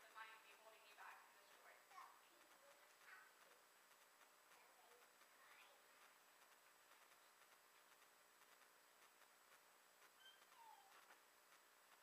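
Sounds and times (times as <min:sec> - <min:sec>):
faint short squeak: 0:10.2 - 0:11.0.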